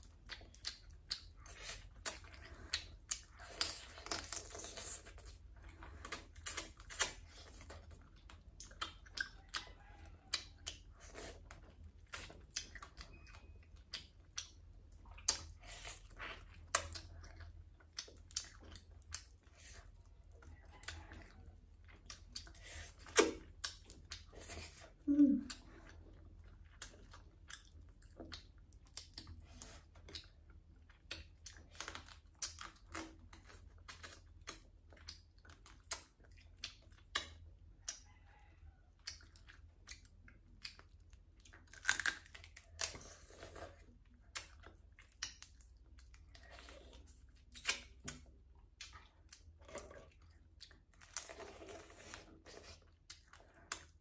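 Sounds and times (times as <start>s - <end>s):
chewing and smacking: 0.0s - 54.0s
low mouth sound: 24.7s - 25.9s.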